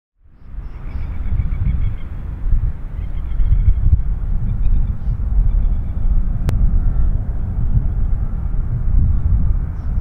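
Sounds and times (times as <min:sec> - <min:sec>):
jet engines rumbling: 0:00.4 - 0:10.0.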